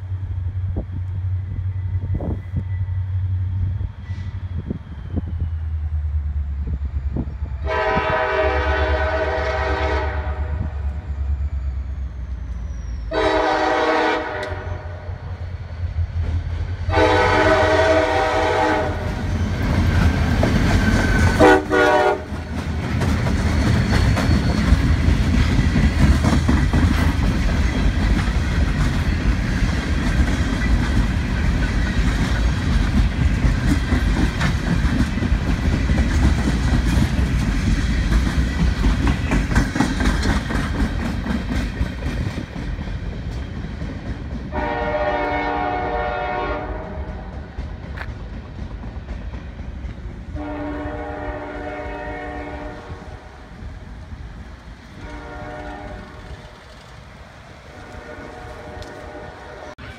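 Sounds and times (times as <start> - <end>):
locomotive air horn blasts: 7.6 - 10.8, 13.1 - 15.2, 16.9 - 19.2, 21.3 - 22.4, 44.5 - 47.1, 50.3 - 53.2, 55.0 - 56.5, 57.7 - 59.8
train wheels clattering: 16.1 - 59.9.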